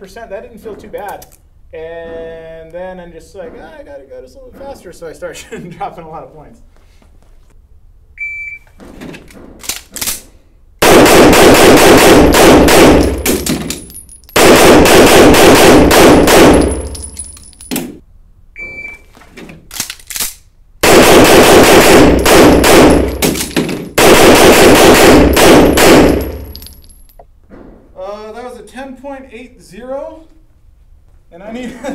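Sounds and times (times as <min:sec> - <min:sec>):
shot timer beep: 0:08.2 - 0:08.6, 0:18.6 - 0:19.0
rapid pistol shots: 0:10.8 - 0:13.7, 0:14.4 - 0:17.0, 0:20.8 - 0:26.6.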